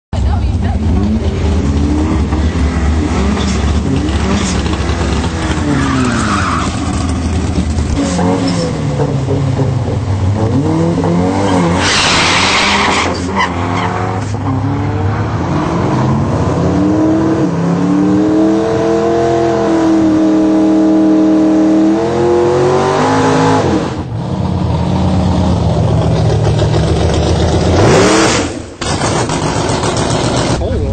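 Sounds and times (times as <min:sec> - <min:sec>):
turbocharged engine revving: 0:00.3 - 0:30.9.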